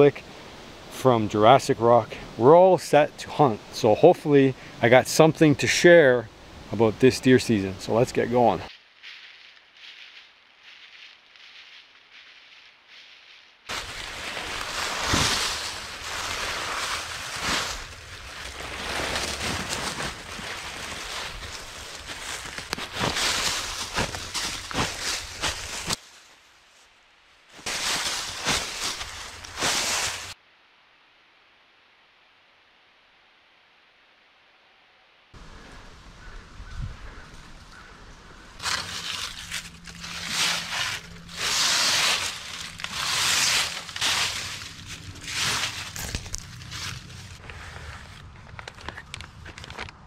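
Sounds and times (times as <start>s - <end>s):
footsteps crunching dry leaves: 7.9s - 26.8s, 27.5s - 30.4s, 38.6s - 48.2s
clothing and gear rustling: 8.8s - 26.2s, 27.6s - 30.4s, 38.6s - 48.2s.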